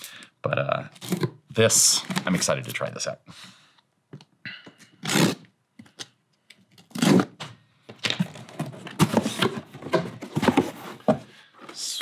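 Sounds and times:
cardboard and tape rustling: 6.7 - 11.8
cardboard box scraping: 8.3 - 11.3.

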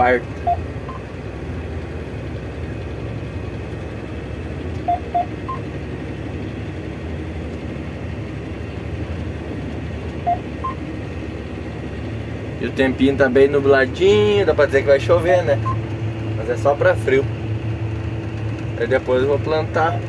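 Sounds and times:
tractor diesel engine running: 0.0 - 20.0
short electronic beeps: 0.4 - 1.1, 4.8 - 5.6, 10.2 - 10.8, 15.6 - 15.8.

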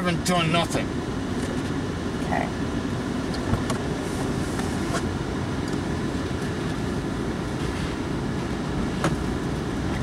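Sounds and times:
car engine and tyre noise: 0.0 - 10.0.

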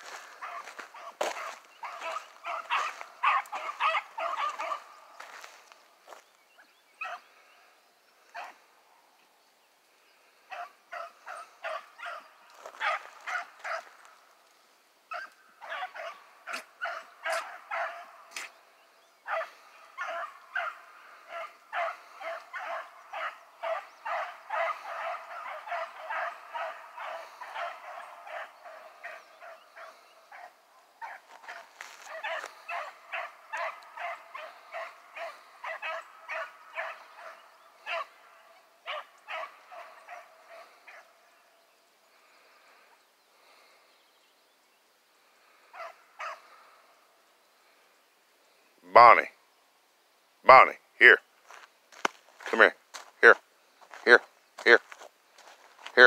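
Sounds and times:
dogs barking: 0.0 - 6.2, 7.0 - 7.3, 8.3 - 8.6, 10.5 - 14.2, 15.1 - 18.5, 19.2 - 41.3, 45.7 - 46.7.

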